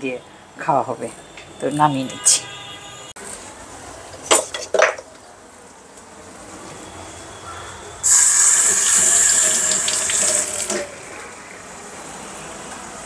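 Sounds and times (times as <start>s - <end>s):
kitchen tap running: 8.0s - 11.6s.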